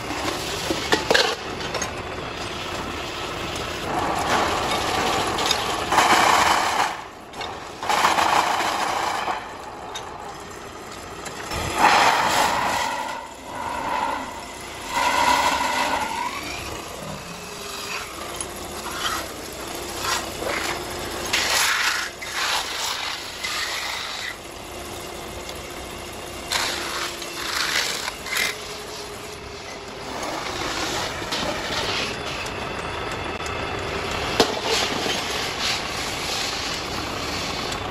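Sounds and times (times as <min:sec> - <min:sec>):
lathe running: 0:09.5 - 0:34.5
tool scraping on spinning metal: 0:11.4 - 0:24.4.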